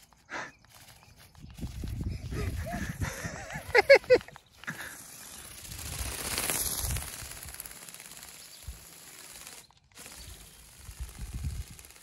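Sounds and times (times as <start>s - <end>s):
toy motor mechanical clatter: 0.0s - 12.0s.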